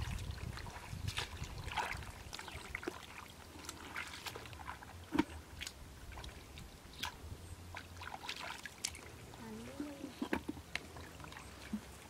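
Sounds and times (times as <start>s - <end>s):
hands splashing in muddy water: 0.0s - 9.2s.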